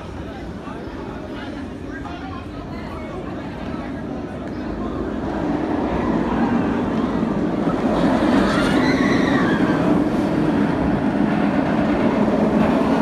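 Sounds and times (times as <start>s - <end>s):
roller coaster rumbling roar: 3.2s - 13.0s.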